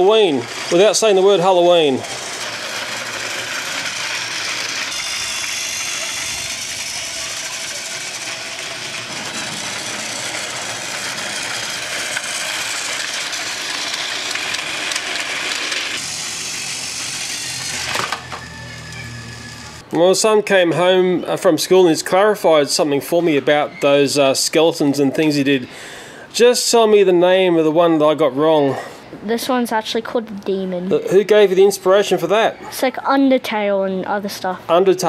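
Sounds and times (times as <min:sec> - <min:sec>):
toy train motors whirring: 0:00.0 - 0:19.8.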